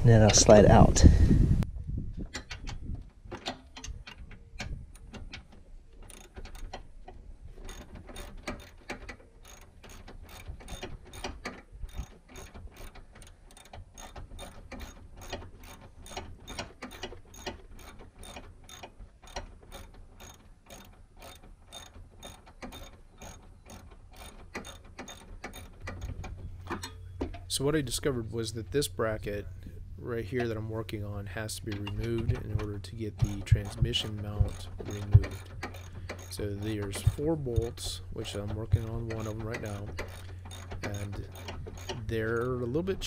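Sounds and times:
socket ratchet clicking: 6.0s - 7.0s, 7.6s - 27.4s, 31.7s - 42.6s.

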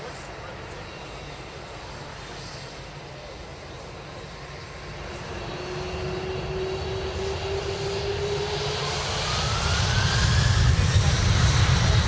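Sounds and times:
jet engines spooling up: 0.2s - 12.0s
higher whine climbing in pitch: 5.0s - 12.0s.

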